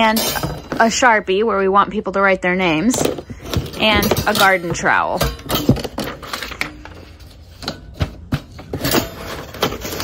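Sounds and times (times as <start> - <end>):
items shifting in cardboard box: 3.0 - 10.0.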